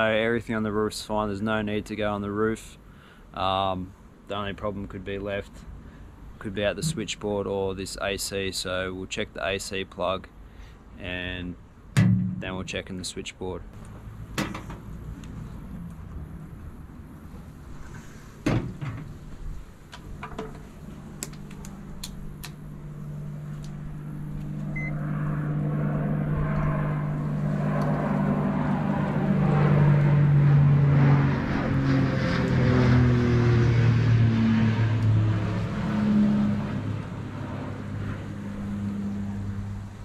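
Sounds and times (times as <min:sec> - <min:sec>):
motor vehicle passing: 0:20.6 - 0:40.0.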